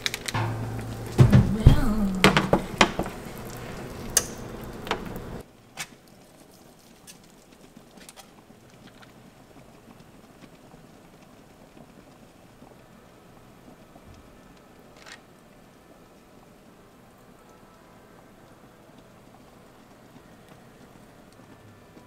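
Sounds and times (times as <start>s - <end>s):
kitchen things clicking and knocking: 0.0s - 5.4s
low hum: 0.4s - 5.4s.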